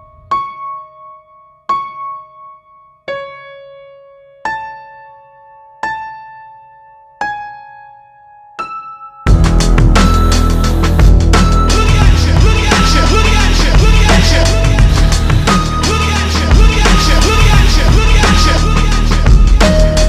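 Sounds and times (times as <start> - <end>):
soft piano chords: 0.0 - 13.6
loud music with a beat: 9.3 - 20.0.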